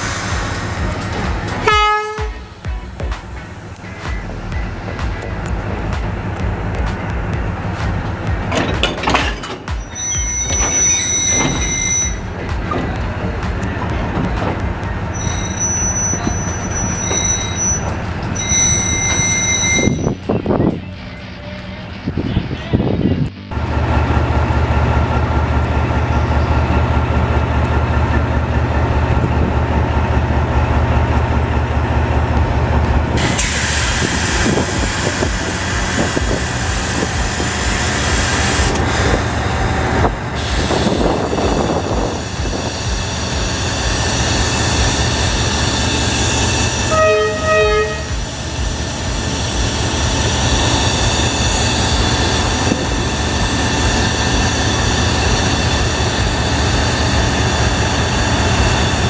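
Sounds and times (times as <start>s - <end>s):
locomotive engine drone: 0.0s - 59.0s
wheel and rail noise: 0.0s - 59.0s
train horn toots: 1.6s - 2.6s, 15.2s - 20.2s, 46.6s - 48.2s.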